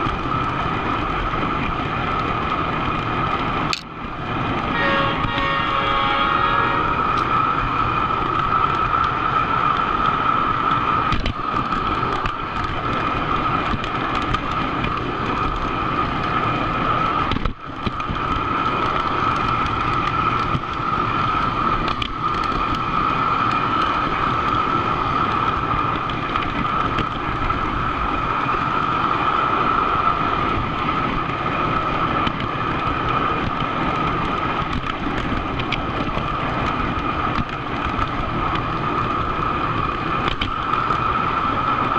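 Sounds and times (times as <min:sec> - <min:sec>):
model train wheels rumbling on rail: 0:00.0 - 0:41.9
model train whine: 0:04.0 - 0:13.5, 0:15.2 - 0:33.4.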